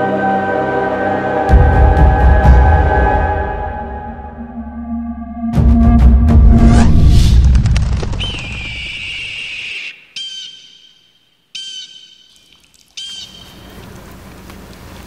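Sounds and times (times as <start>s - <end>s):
deep film music swell: 0.0s - 7.4s
high whistling tone: 8.2s - 12.2s
short high whistle-like calls: 8.2s - 13.7s.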